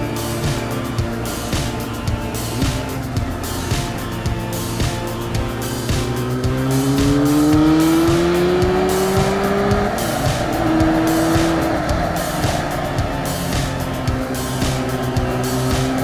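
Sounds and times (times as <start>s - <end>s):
background music with beat: 0.0s - 16.0s
motorcycle engine revving: 0.0s - 16.0s
wind rushing over microphone: 6.0s - 16.0s.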